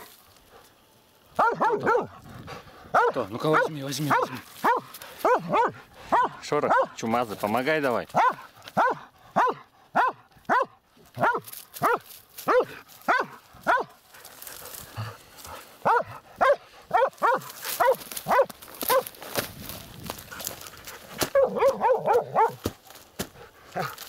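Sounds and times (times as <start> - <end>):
dog barking: 1.4 - 2.2, 2.9 - 7.0, 8.1 - 14.0, 15.8 - 19.1, 21.2 - 22.7, 23.8 - 24.0.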